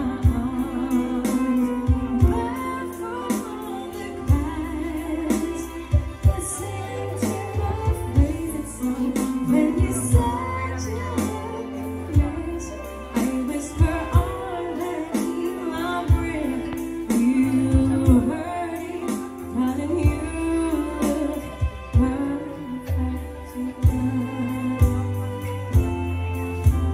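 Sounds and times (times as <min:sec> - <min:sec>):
bowed violin: 0:00.0 - 0:26.9
keyboard: 0:00.0 - 0:26.9
sustained bass notes: 0:00.0 - 0:26.9
woman singing: 0:00.0 - 0:26.9.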